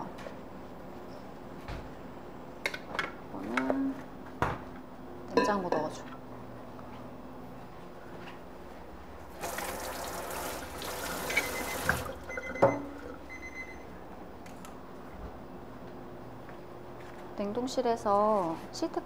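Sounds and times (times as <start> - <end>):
water running from tap: 9.4 - 13.2.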